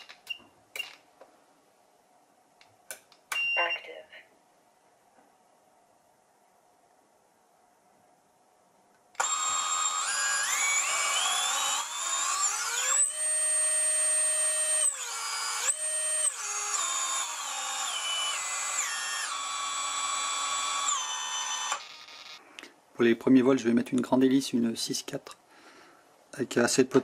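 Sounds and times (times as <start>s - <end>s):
electric motor whine: 9.2s - 22.3s.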